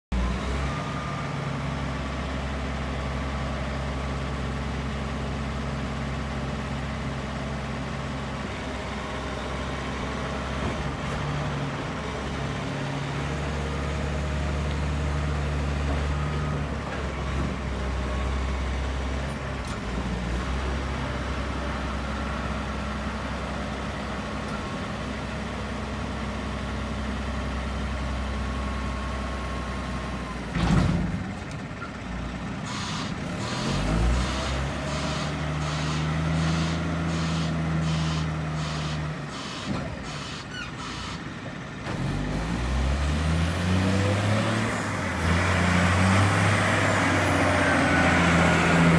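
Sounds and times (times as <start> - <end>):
diesel engine running: 0.1 - 48.9
hydraulic rams tipping dump body: 30.5 - 31.9.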